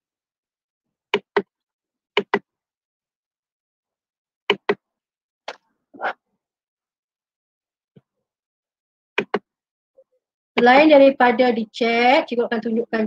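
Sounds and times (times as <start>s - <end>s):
computer mouse clicking: 2.2s - 2.4s, 9.2s - 9.4s.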